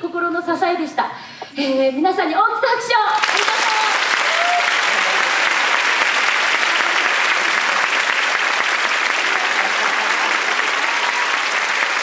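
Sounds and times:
audience applause: 0:03.1 - 0:12.0.

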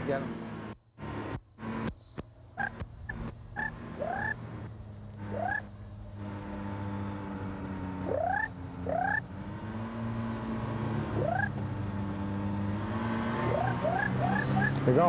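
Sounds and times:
ultralight engine drone: 0:00.0 - 0:15.0
cranes calling: 0:02.6 - 0:04.4, 0:05.2 - 0:05.7, 0:08.0 - 0:09.2, 0:11.2 - 0:11.6, 0:13.5 - 0:14.8.

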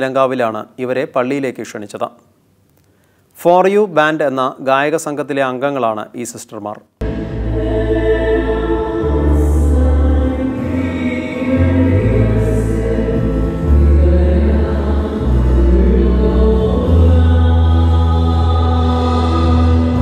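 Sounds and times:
choir singing a hymn: 0:07.0 - 0:20.0.

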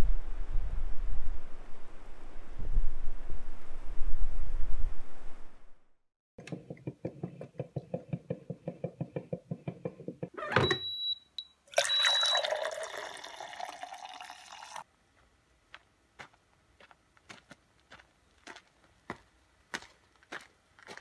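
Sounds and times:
coffee maker gurgling: 0:11.7 - 0:14.8
coffee pouring into a mug: 0:11.7 - 0:14.8.

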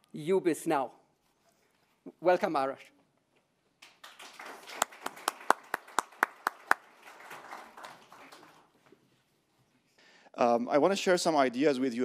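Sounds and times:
one person clapping loudly: 0:03.8 - 0:08.7
audience applauding: 0:03.8 - 0:08.8.

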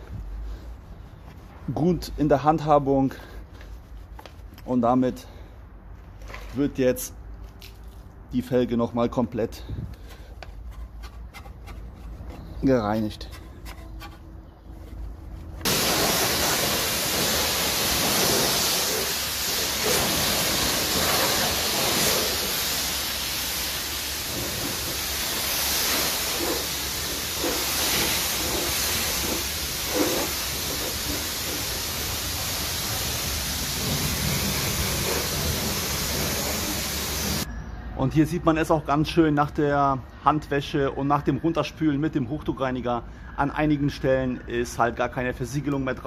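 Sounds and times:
brush rubbing on metal rim: 0:10.5 - 0:15.6
pressure washer spraying water: 0:15.6 - 0:37.5.

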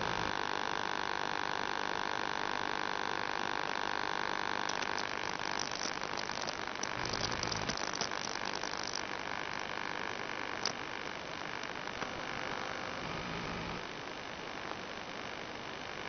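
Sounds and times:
electrical hum: 0:00.0 - 0:16.0
radio hiss: 0:00.0 - 0:16.0
dense crackling: 0:03.8 - 0:13.7.

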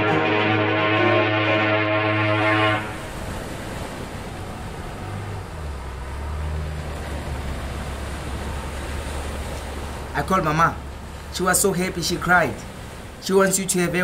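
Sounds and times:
motorboat engine drone: 0:00.0 - 0:10.1
rushing water: 0:00.0 - 0:14.0.

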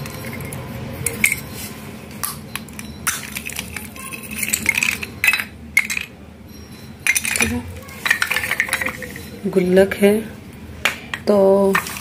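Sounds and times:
clay pieces clinking: 0:02.2 - 0:09.8, 0:11.1 - 0:12.0.

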